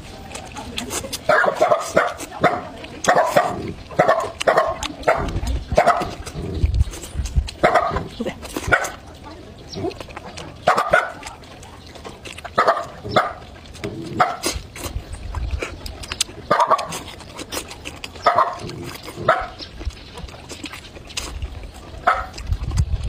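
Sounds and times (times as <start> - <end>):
dog barking: 1.3 - 6.2, 7.6 - 8.1, 8.7 - 9.0, 10.6 - 11.3, 12.6 - 13.5, 14.2 - 14.5, 16.5 - 17.0, 18.2 - 19.6, 22.0 - 22.4.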